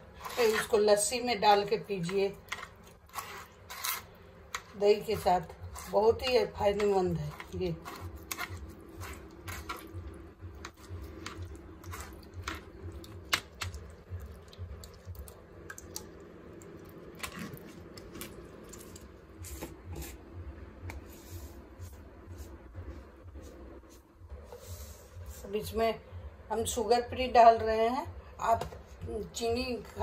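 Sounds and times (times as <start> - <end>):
spoon scraping a mesh strainer: 0.0 - 9.9.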